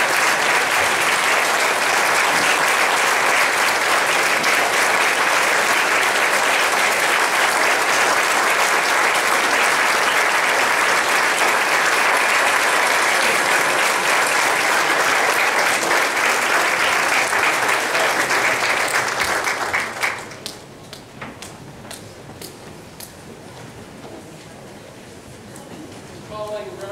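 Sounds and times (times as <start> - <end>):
audience applauding: 0.0 - 20.7.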